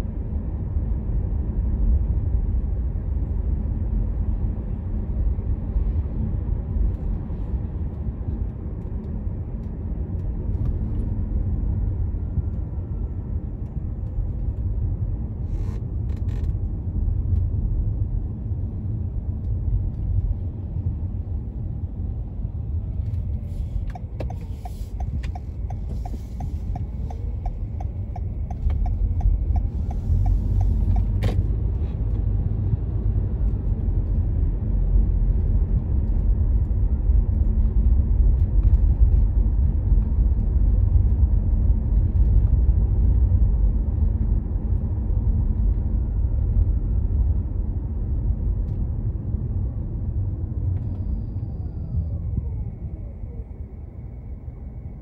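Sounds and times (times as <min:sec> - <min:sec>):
car driving rumble: 0:00.0 - 0:55.0
even ticks: 0:23.9 - 0:31.2.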